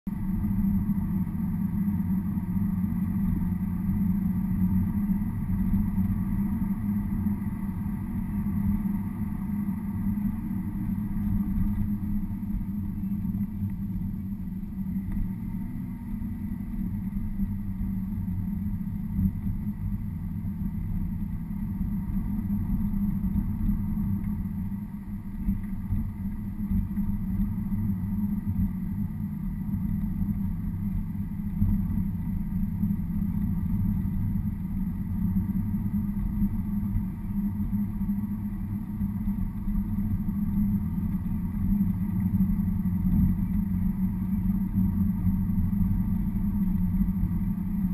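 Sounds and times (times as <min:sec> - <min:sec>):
car engine and tyre drone: 0:00.1 - 0:47.9.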